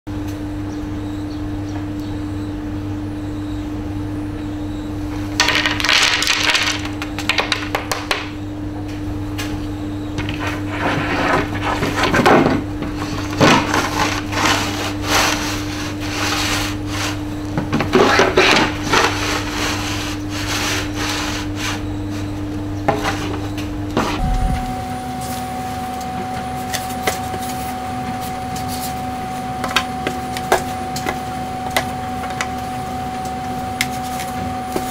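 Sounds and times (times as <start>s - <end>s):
low electrical hum: 0.1s - 34.9s
iron scraping over wooden board: 10.4s - 12.2s.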